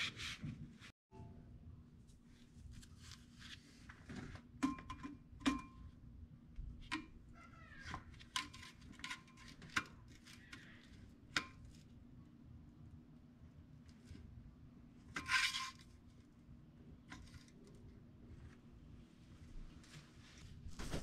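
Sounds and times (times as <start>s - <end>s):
metal scrape: 15.1s - 15.9s.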